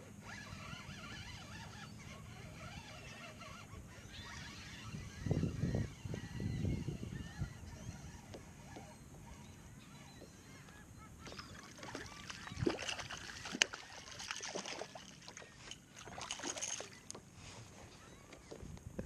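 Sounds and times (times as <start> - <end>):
fish splashing at water surface: 11.8 - 15.4.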